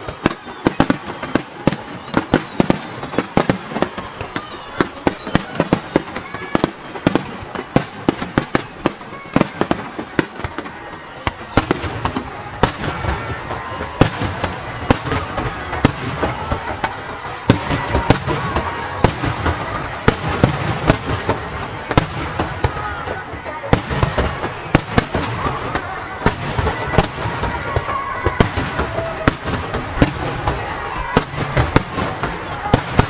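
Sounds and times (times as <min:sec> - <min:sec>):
firework bangs: 0:00.0 - 0:33.0
firework crackling: 0:00.0 - 0:33.0.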